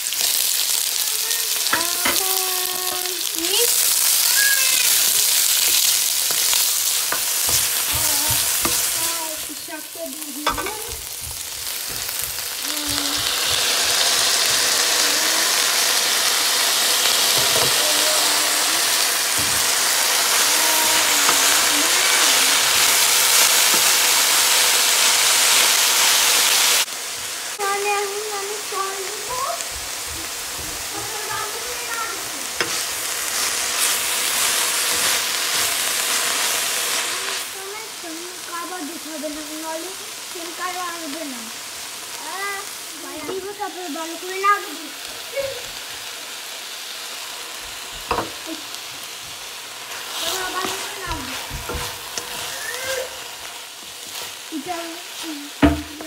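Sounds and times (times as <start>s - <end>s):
vegetables frying in hot oil: 0.0s - 56.0s
spatula stirring in pan: 1.2s - 18.0s, 29.0s - 37.5s, 46.7s - 56.0s.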